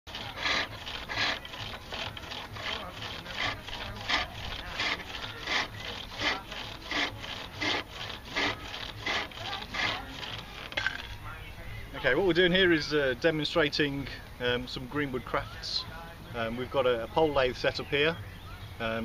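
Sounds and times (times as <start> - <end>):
chisel rasping on spinning wood: 0.1 - 11.0.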